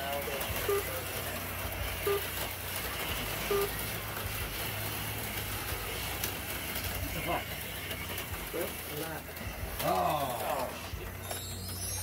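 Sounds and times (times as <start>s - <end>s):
whir of small electric motors: 0.0s - 12.0s.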